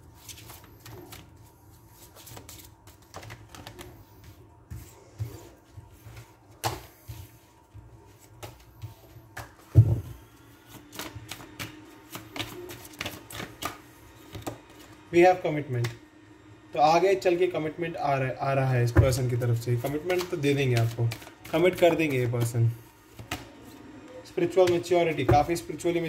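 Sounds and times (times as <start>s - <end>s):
cards shuffling clicks: 2.0s - 4.0s, 10.4s - 15.0s, 19.7s - 23.6s
cards thumping on table: 19.8s - 23.6s.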